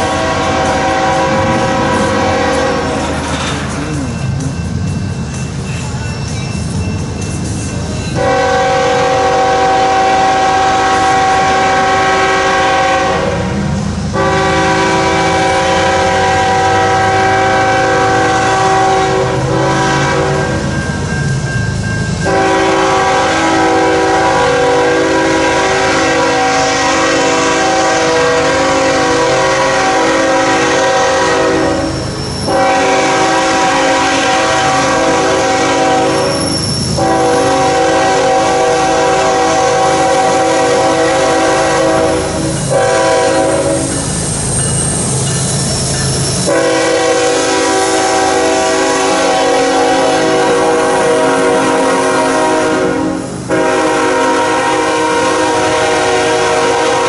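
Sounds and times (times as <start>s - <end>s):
locomotive air horn blasts: 0.0s - 4.6s, 8.2s - 20.7s, 22.2s - 44.1s, 46.4s - 57.0s
diesel engine rumble: 0.0s - 8.0s
freight cars rolling on rails: 0.0s - 57.0s.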